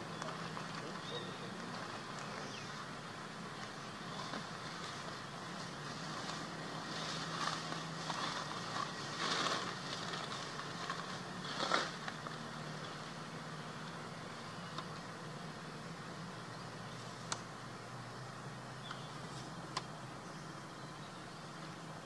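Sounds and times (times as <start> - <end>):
distant engine hum: 0.0 - 22.0
outdoor ambient hiss: 0.0 - 22.0
soft rustles: 3.6 - 13.0.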